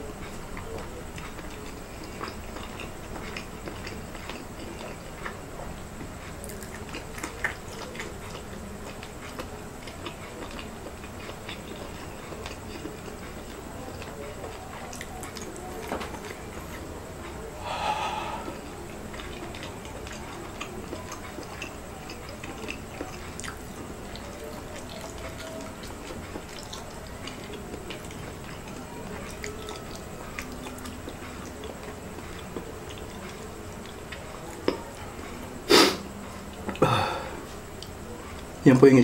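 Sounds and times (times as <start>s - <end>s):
man exhaling breathily: 17.6s - 18.7s, 36.8s - 37.4s.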